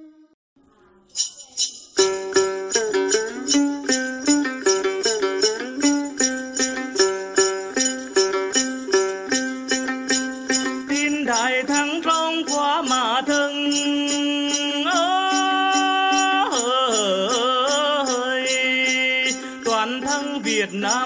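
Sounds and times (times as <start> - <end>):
jingling bell rattle: 1.1 - 21.0.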